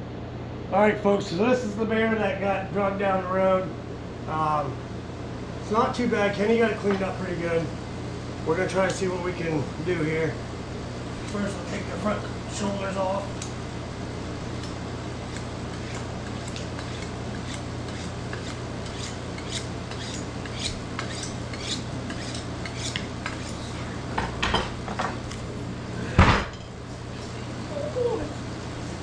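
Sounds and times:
steady low hum: 0.0s - 29.0s
knife scraping against bone: 11.1s - 11.6s, 14.5s - 23.9s.

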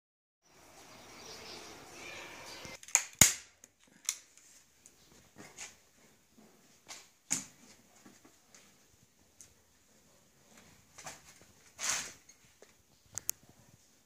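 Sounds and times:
staple gun firing: 2.8s - 3.5s.

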